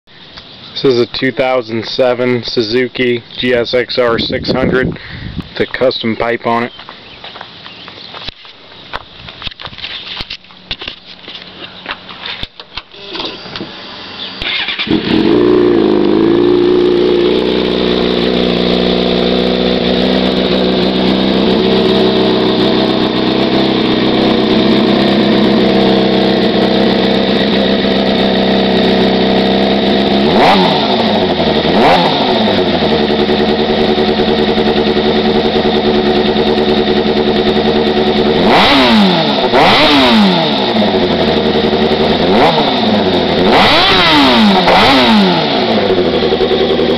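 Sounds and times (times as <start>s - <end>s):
motorcycle engine idling and revving: 9.5s - 46.9s.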